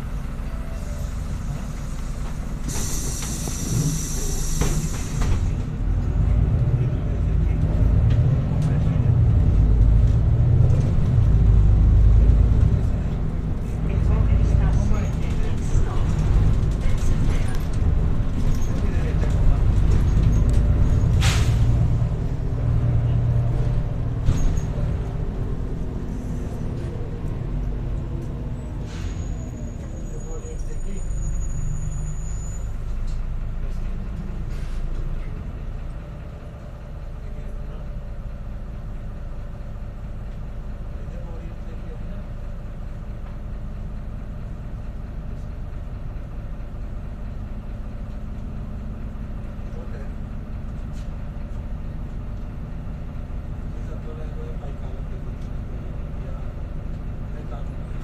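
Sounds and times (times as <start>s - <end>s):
bus diesel engine drone: 0.0s - 58.0s.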